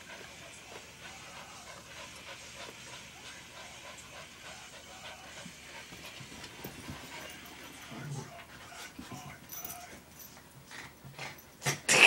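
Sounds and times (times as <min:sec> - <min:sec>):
dogs panting: 0:00.0 - 0:11.6
dogs scuffling: 0:05.3 - 0:11.4
soft rustles: 0:05.8 - 0:11.4.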